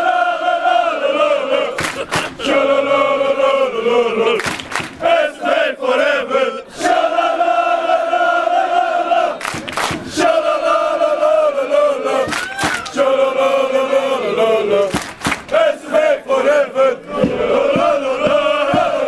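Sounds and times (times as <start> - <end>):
crowd chanting: 0.0 - 19.0
sharp claps: 1.8 - 2.4, 4.4 - 5.0, 9.4 - 10.1, 12.3 - 13.0, 14.9 - 15.6.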